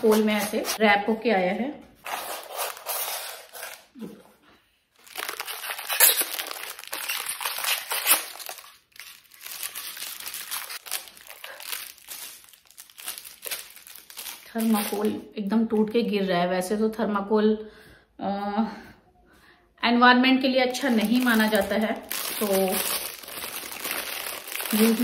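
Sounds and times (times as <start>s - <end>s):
plastic wrap crinkling: 0.0s - 0.8s, 5.0s - 15.9s, 20.6s - 25.0s.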